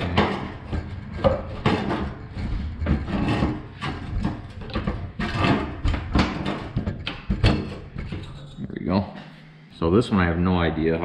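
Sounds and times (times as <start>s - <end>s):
metal panel scraping and knocking: 0.0s - 8.6s.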